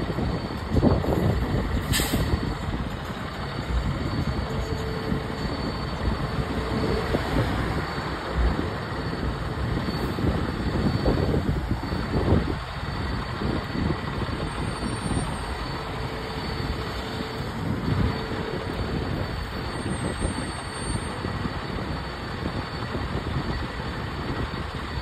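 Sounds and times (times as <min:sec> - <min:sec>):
diesel engine idling: 0:00.0 - 0:25.0
air brake hiss: 0:01.8 - 0:02.4.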